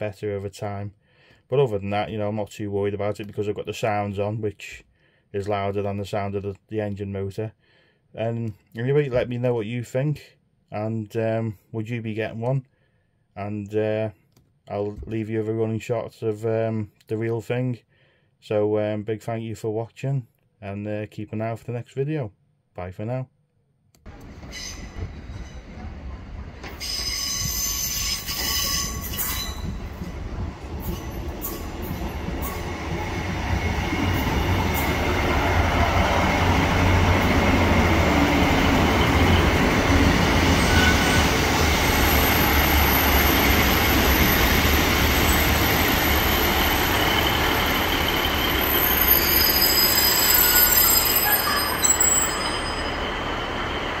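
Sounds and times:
train engine and wheel rumble: 24.1s - 54.0s
high wheel squeal: 24.4s - 25.7s, 26.8s - 29.8s, 36.2s - 54.0s.

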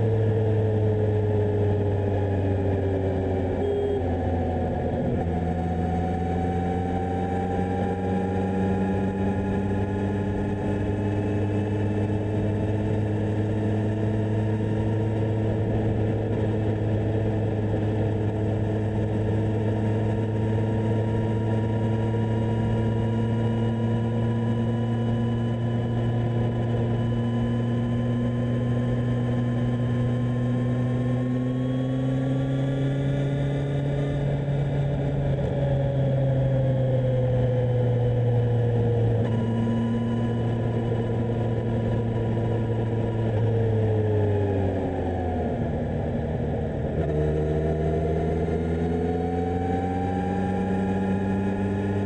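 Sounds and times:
motorcycle engine running: 0.0s - 52.0s.

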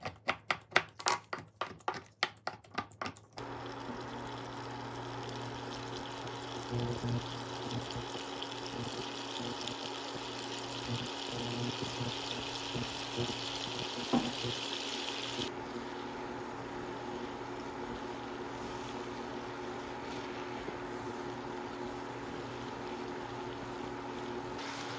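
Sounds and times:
butter sizzling in a saucepan: 3.4s - 15.5s, 17.4s - 24.9s.

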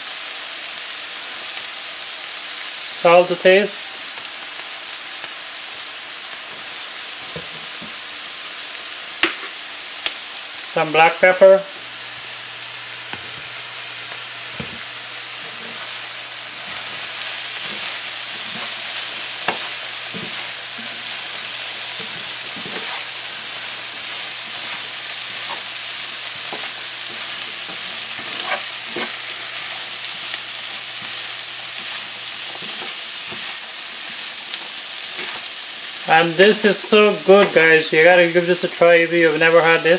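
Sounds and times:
peas sizzling in oil: 0.0s - 39.9s
spatula scraping and knocking pan: 16.6s - 35.6s.

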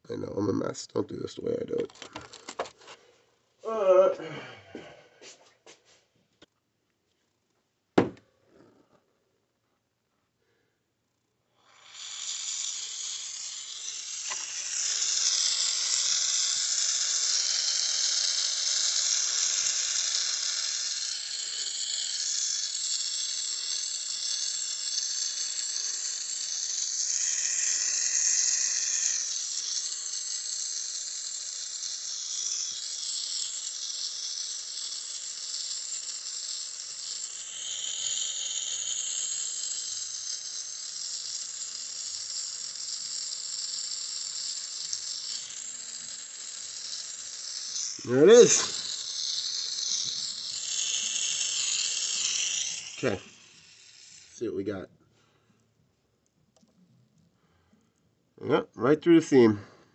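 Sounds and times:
torch flame hissing: 11.6s - 54.5s.

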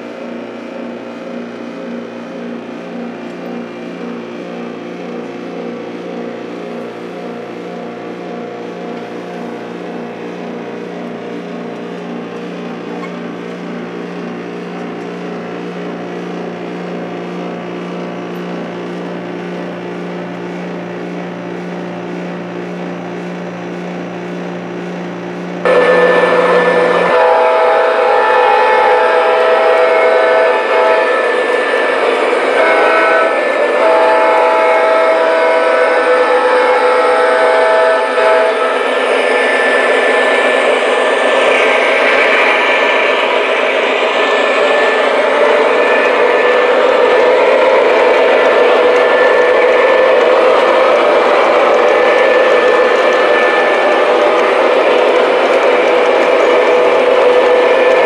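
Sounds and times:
diesel horn chord: 25.7s - 31.8s.

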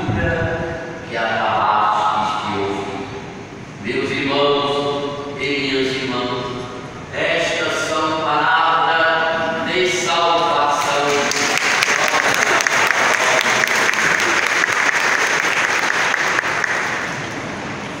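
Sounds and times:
crowd applauding: 10.8s - 17.6s.

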